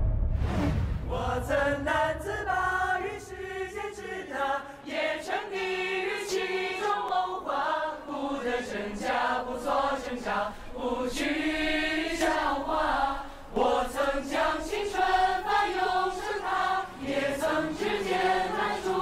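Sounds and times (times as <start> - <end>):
choir singing in unison: 0.7 - 19.0.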